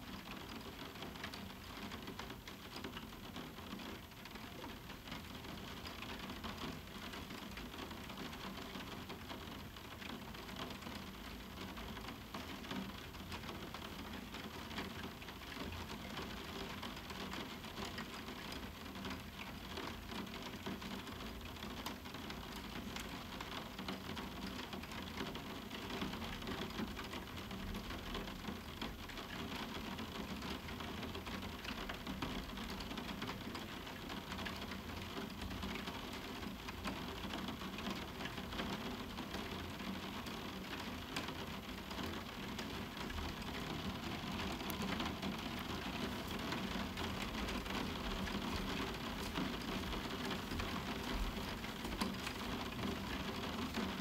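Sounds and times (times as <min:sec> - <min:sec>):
rain falling on a roof window: 0:00.0 - 0:54.0.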